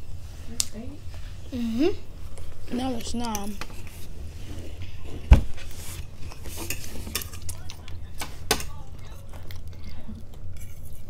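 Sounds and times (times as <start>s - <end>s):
forks clinking and scraping plates: 6.2s - 7.8s.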